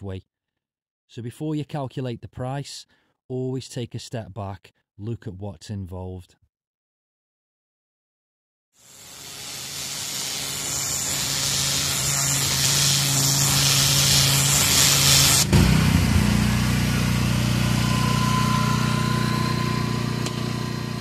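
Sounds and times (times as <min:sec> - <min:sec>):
water jet hissing onto paving: 0:08.8 - 0:15.5
pressure washer motor humming: 0:08.8 - 0:21.0.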